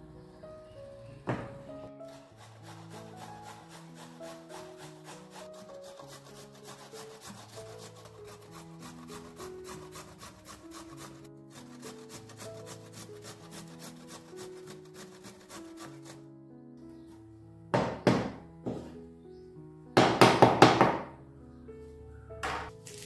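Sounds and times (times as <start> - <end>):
soft background music: 0.0 - 23.0
root grated on metal grater: 1.9 - 16.2.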